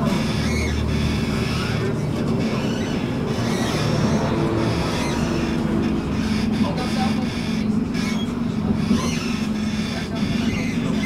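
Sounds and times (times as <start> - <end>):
tram hum: 0.0 - 11.0.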